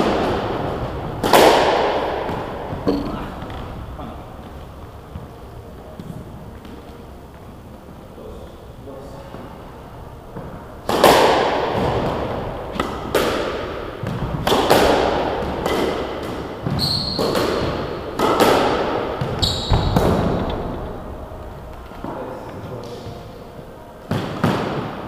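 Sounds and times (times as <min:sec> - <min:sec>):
squash ball hitting rackets and walls: 0:00.0 - 0:05.3, 0:10.3 - 0:22.2, 0:22.8 - 0:25.0
short high squeaks: 0:16.8 - 0:17.4, 0:19.4 - 0:20.0.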